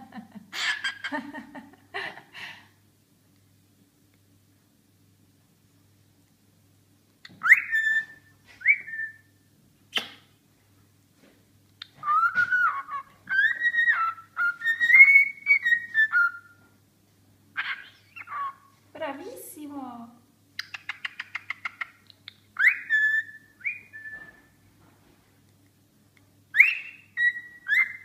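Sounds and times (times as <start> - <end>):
cockatiel chirps: 7.3 - 9.2, 11.8 - 16.6, 17.6 - 18.7, 20.6 - 24.4, 26.5 - 28.0
cockatiel whistling: 7.3 - 9.3, 11.8 - 16.6, 17.6 - 18.7, 22.6 - 24.5, 26.5 - 28.0.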